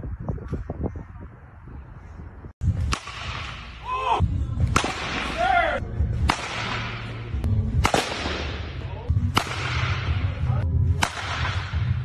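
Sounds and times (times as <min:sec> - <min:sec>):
bat striking balls: 0:02.6 - 0:10.3, 0:10.9 - 0:12.0.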